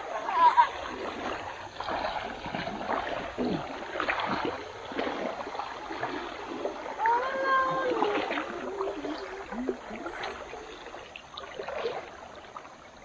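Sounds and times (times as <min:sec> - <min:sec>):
river water splashing: 0:00.0 - 0:13.0.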